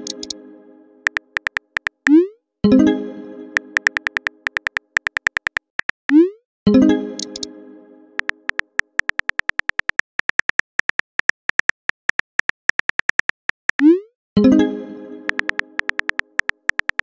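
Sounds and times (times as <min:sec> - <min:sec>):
keyboard tap clicks: 0:00.0 - 0:00.4, 0:01.1 - 0:02.2, 0:03.8 - 0:06.2, 0:07.2 - 0:07.5, 0:08.2 - 0:13.8, 0:15.3 - 0:17.0.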